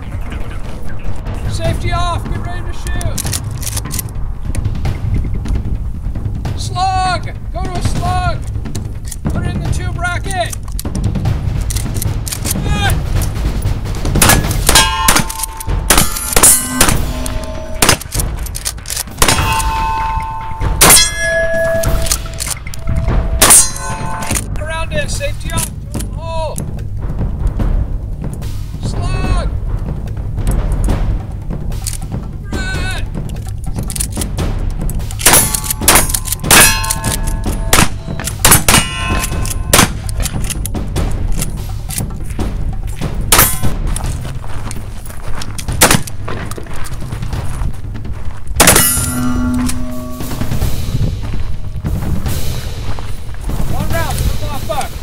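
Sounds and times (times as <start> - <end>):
shotgun shots: 14.1 - 24.5, 35.2 - 40.6, 43.3 - 43.8, 45.8 - 46.2, 48.6 - 50.9
steel targets clanging: 14.2 - 24.6, 35.1 - 40.7, 43.3 - 43.8, 48.6 - 51.1
metallic ringing: 14.7 - 18.5, 19.2 - 24.6, 35.2 - 40.3, 48.6 - 51.4.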